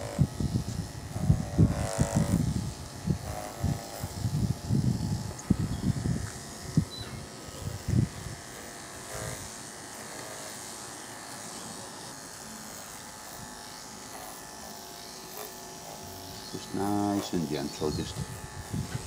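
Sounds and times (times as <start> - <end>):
electric pet clippers buzzing: 0.0 - 19.0.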